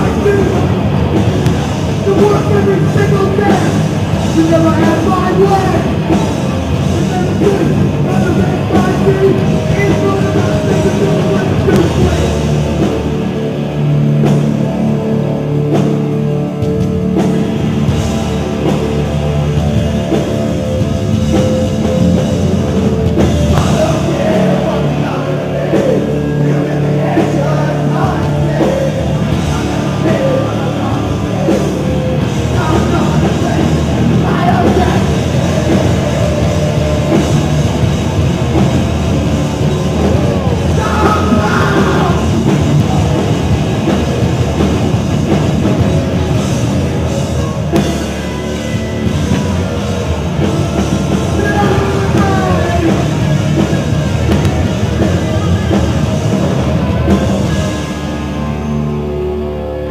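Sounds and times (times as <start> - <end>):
punk band playing live: 0.0 - 59.9
person singing: 23.4 - 37.9, 39.6 - 43.5, 50.4 - 53.7.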